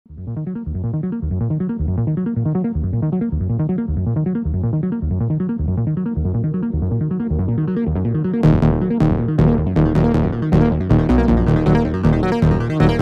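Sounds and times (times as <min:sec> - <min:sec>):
electronic synthesizer music: 0:05.3 - 0:13.0.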